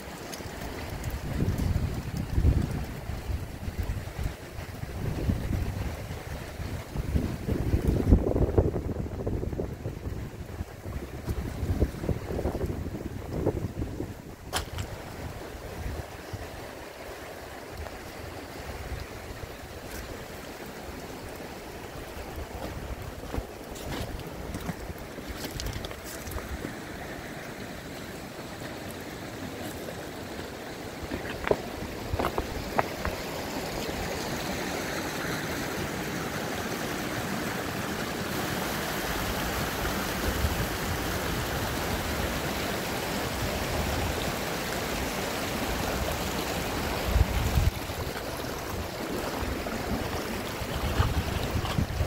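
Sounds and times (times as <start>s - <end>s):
wind buffeting microphone: 0.8s - 16.7s, 31.0s - 33.3s, 45.7s - 52.0s
stones clicking underfoot: 22.6s - 26.8s, 31.0s - 33.2s.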